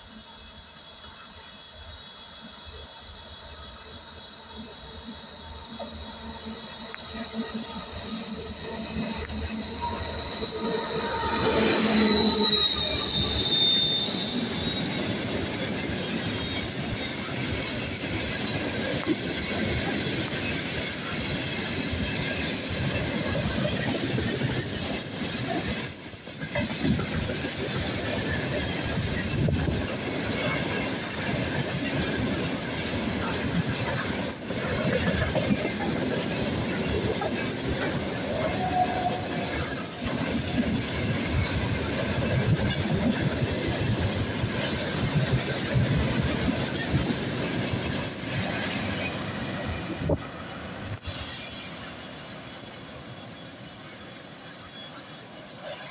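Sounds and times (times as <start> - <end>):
diesel locomotive passing with whine: 0.0 - 55.9
wheels rumbling on rail: 0.0 - 55.9.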